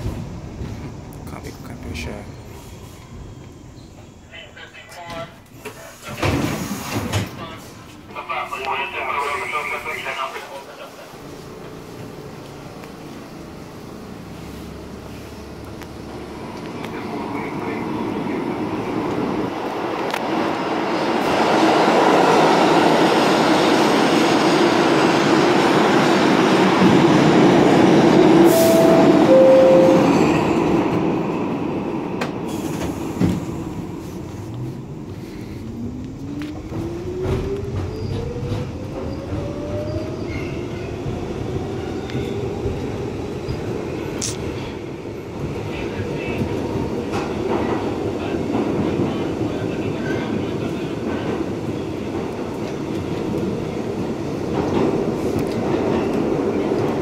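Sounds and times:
subway train wheels rumbling: 0.0 - 57.0
two short tones: 28.5 - 30.3.

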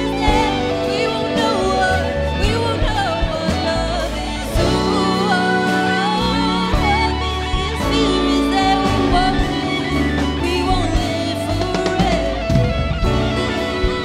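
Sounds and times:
jazz-pop band playing: 0.0 - 14.0
woman singing: 0.0 - 14.0.

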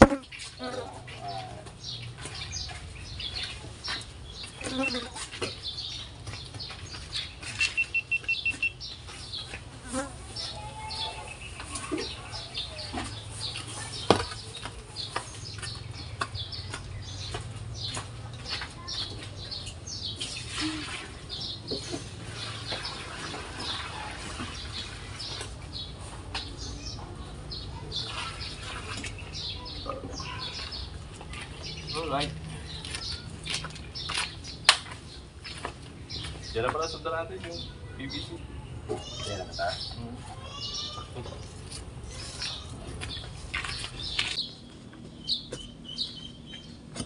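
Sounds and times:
high chirps and ticks: 5.9 - 9.6.

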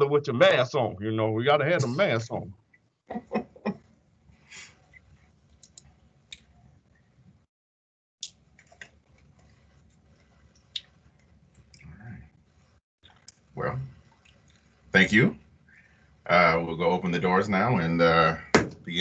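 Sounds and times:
low hum: 0.0 - 2.6.

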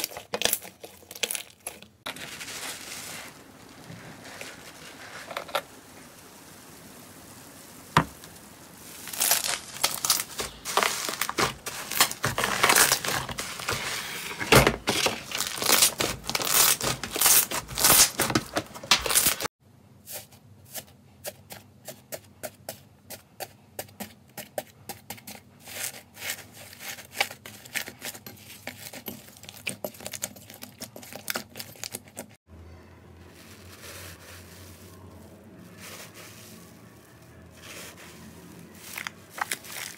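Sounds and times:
slime crackling and popping: 3.0 - 13.4, 35.7 - 39.9.

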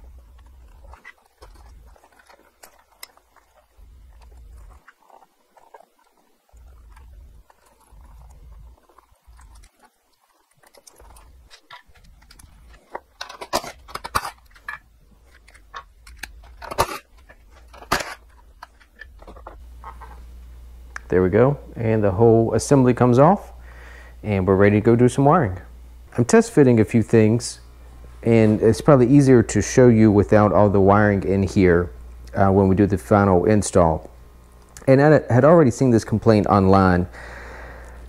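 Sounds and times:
plastic connectors clicking and rattling: 10.6 - 20.0.

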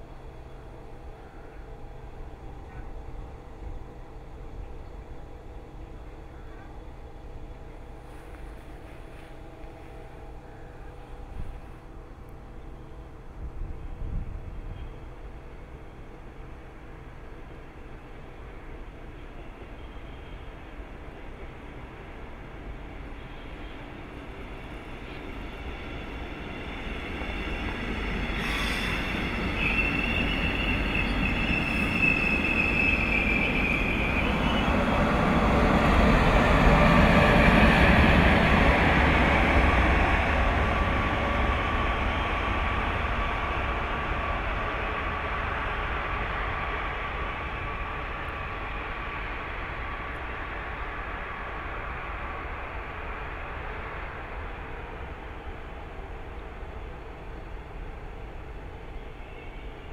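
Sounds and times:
steady train whine: 0.0 - 59.9
train wheels rumbling on rails: 0.0 - 59.9
high wheel squeal: 26.8 - 35.1.

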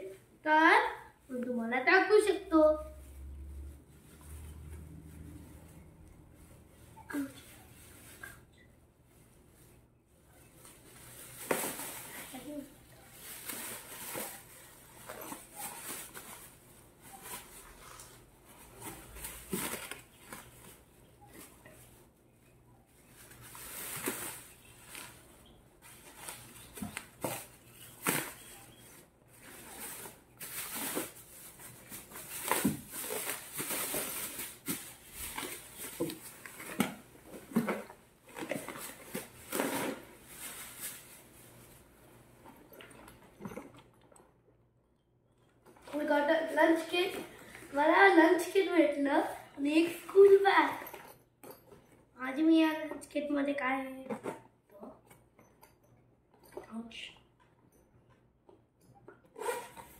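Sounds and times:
plastic packaging crinkling: 23.0 - 41.9.

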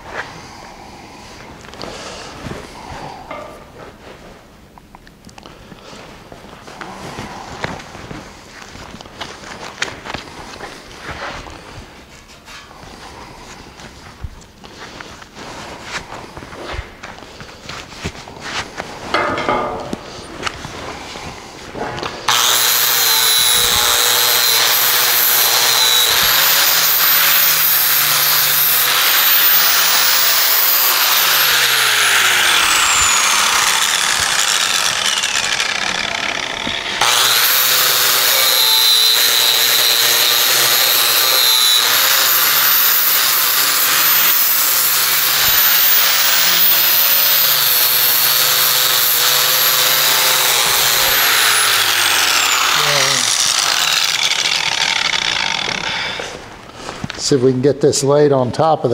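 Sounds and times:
angle grinder grinding steel: 22.2 - 56.6.

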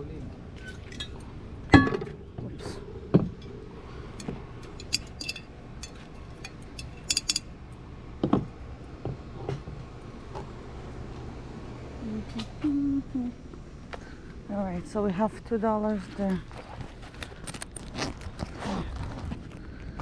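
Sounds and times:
ceramic pieces clinking: 4.7 - 7.5.

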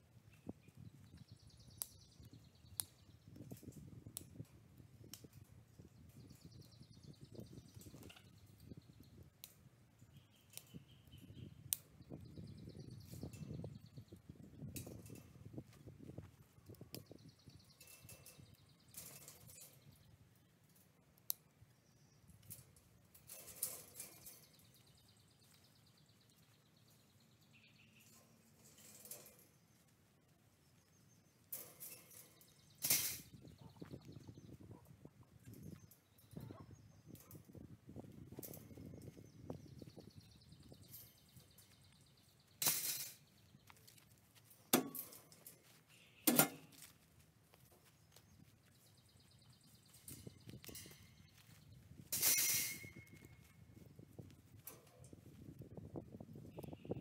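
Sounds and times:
clicks of wire fencing handled: 0.3 - 21.6, 22.2 - 30.0, 31.3 - 57.0
wire fencing rattling: 14.6 - 15.6, 17.2 - 20.0, 22.4 - 25.1, 27.9 - 29.8, 31.4 - 33.5, 35.4 - 39.8, 40.6 - 43.4, 44.4 - 47.0, 49.7 - 54.0
sharp metallic clinks: 17.6 - 20.0, 49.6 - 53.8.

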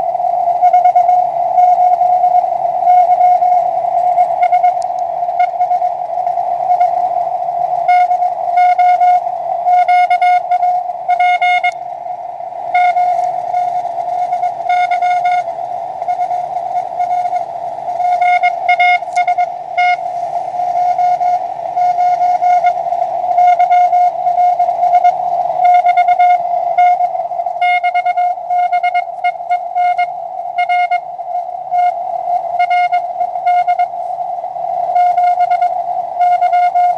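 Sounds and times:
morse code tone: 0.0 - 7.1, 7.7 - 11.8, 12.7 - 36.9
radio band noise hiss: 0.0 - 36.9.

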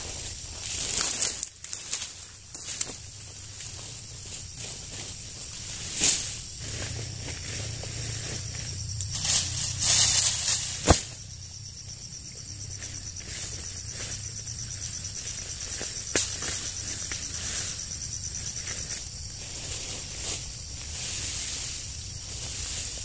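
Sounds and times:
insects buzzing: 0.0 - 23.0
rustling brush and leaves: 0.0 - 23.0
sharp crack: 9.0 - 11.2.

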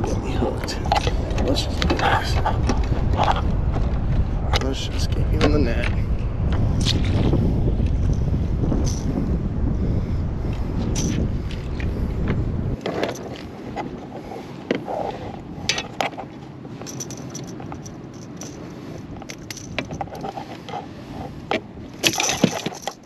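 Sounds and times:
fishing gear clicking and rattling: 0.0 - 3.6, 8.0 - 9.2, 11.0 - 11.9, 12.8 - 23.0.

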